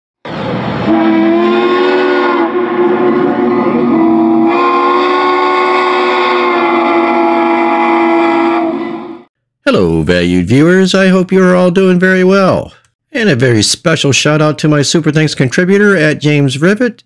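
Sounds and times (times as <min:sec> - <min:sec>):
steam locomotive chime whistle: 0:00.8 - 0:09.3.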